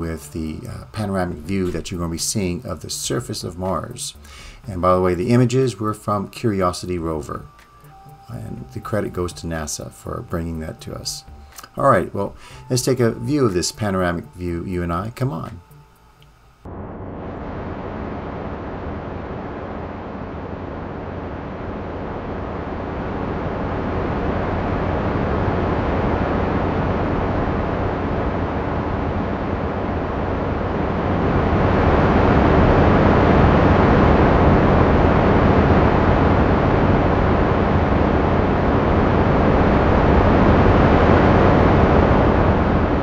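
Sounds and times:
deep rushing wind: 16.6s - 43.0s.

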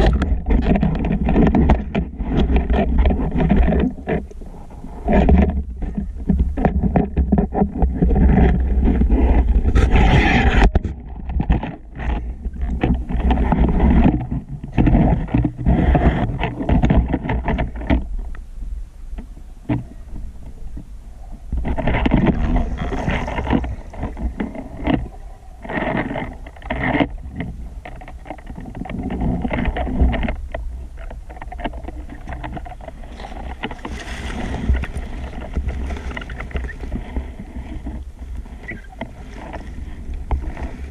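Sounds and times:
underwater rumble of moving water: 0.0s - 40.9s
small clicks and knocks: 23.0s - 34.0s.

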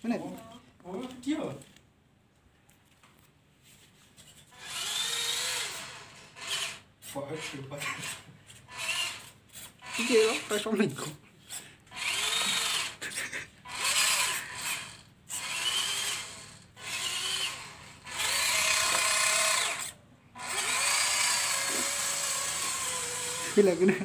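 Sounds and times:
toy electric motor whining: 4.4s - 10.8s, 11.4s - 24.0s.

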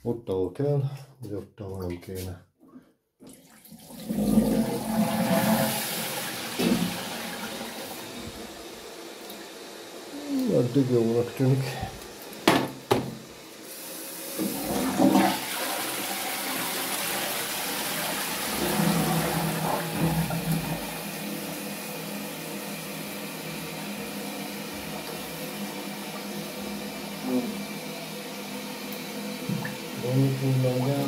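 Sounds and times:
water rushing into toilet bowl: 3.2s - 31.0s
cistern refilling hiss: 5.2s - 12.4s, 13.4s - 28.8s
pipe knocks: 12.4s - 13.2s.

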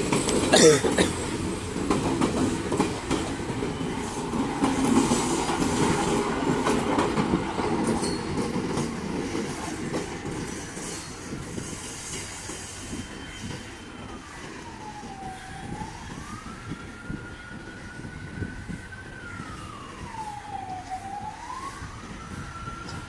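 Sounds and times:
siren wailing: 14.0s - 23.0s.

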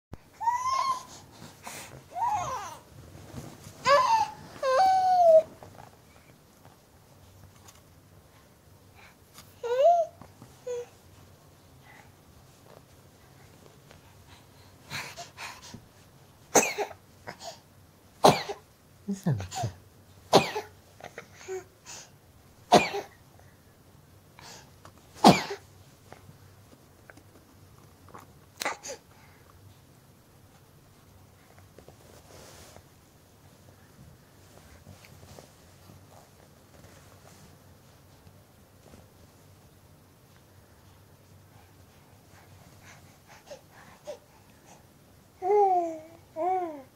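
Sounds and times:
baby squealing: 0.4s - 1.1s
baby sneezing: 25.2s - 25.6s.

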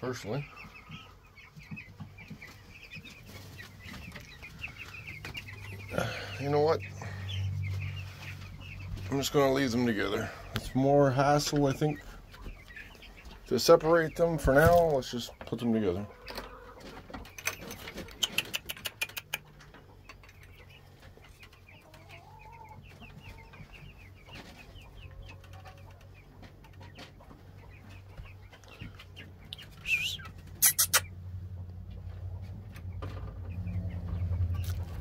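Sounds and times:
chicks peeping and clucking: 0.0s - 35.0s.

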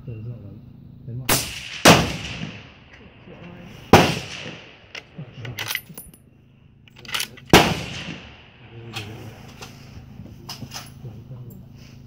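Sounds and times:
rifle shot: 1.3s - 5.7s, 7.0s - 9.2s
metallic clicks of rifle bolt: 4.9s - 6.2s, 6.9s - 7.6s.

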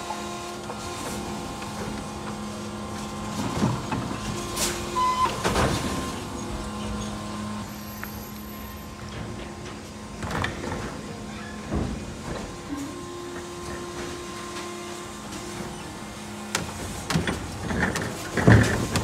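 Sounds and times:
garbage truck humming: 0.0s - 19.0s
metal clanks and knocks: 9.0s - 14.7s.

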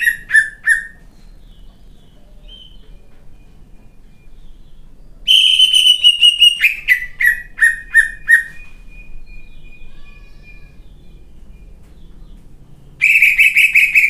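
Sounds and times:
bird singing: 0.0s - 14.0s.

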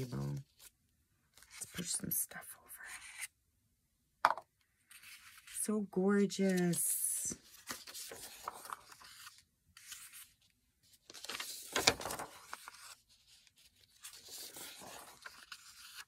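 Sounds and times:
paper sheets rustling: 6.4s - 16.0s
paper flapping: 11.0s - 13.0s.

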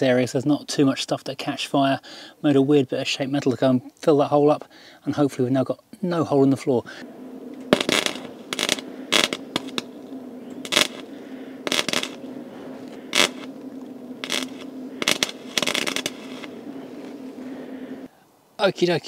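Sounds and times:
steady low hum: 6.3s - 18.1s
welding arc crackling: 7.0s - 18.1s.

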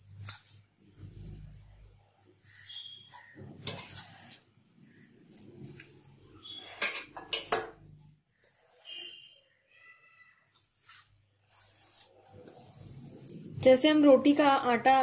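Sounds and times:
fingers scraping steel bowl: 2.6s - 4.5s.

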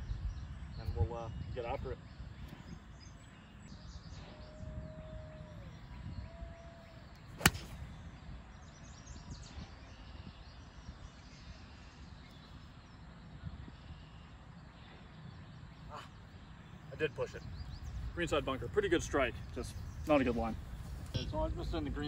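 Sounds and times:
golf club striking ball: 7.4s - 7.8s.

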